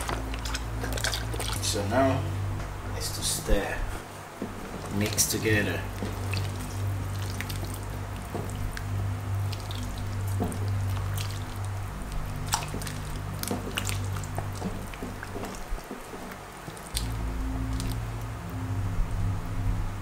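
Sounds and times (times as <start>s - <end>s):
spatula stirring thick liquid: 0.0s - 1.8s, 5.9s - 17.0s
background music with bass: 0.0s - 3.9s, 4.5s - 20.0s.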